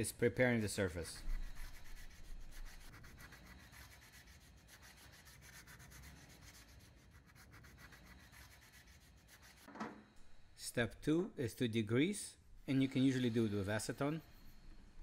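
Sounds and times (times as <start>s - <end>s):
sandpaper rubbing on metal: 1.1s - 9.7s.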